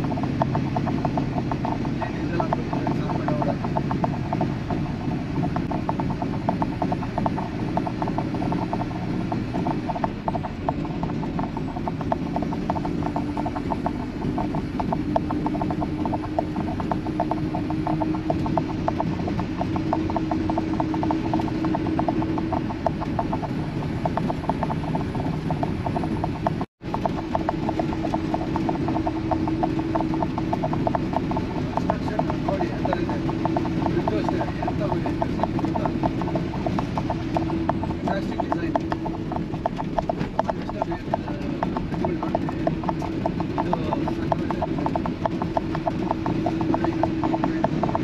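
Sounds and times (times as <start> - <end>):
fast rattling tick: 0.0 - 48.0
road and engine drone: 0.0 - 48.0.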